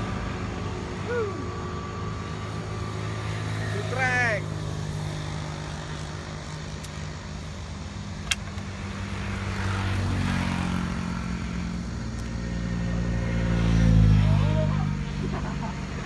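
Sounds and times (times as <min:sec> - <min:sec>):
sharp click: 0:08.2 - 0:08.7
vehicle engine passing: 0:08.7 - 0:16.0.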